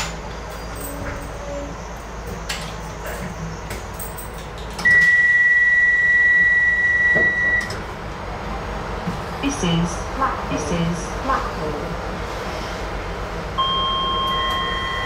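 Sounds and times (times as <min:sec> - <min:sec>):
train door warning beep: 0:04.8 - 0:07.8, 0:13.6 - 0:15.0.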